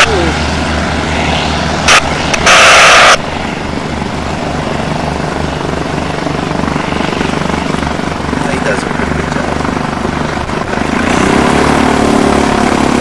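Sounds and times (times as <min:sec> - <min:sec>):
light plane piston engine running: 0:00.0 - 0:13.0
loud hiss: 0:01.9 - 0:03.2.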